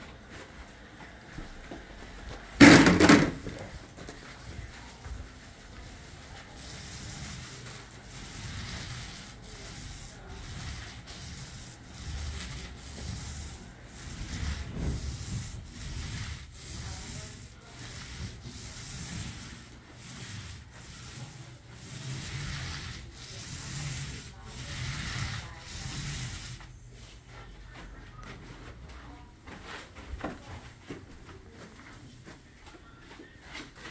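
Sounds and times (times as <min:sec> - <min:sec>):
paint roller swishing: 0:01.4 - 0:28.4.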